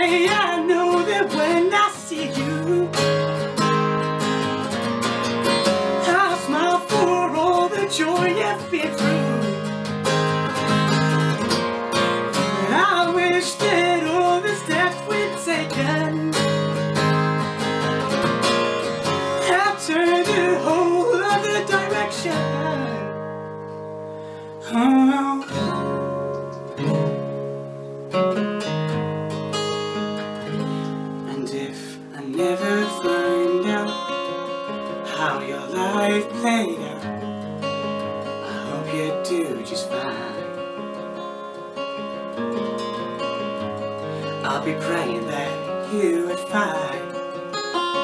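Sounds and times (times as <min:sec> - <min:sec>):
man singing: 0:00.0 - 0:03.4, 0:05.9 - 0:10.0, 0:12.2 - 0:16.8, 0:19.0 - 0:23.2, 0:24.6 - 0:26.2, 0:31.2 - 0:37.4, 0:38.4 - 0:41.1, 0:44.2 - 0:48.0
strummed acoustic guitar: 0:00.0 - 0:48.0.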